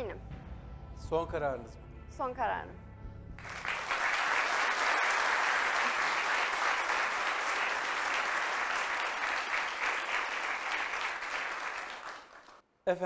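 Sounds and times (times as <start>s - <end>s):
studio audience applauding: 3.4s - 12.6s.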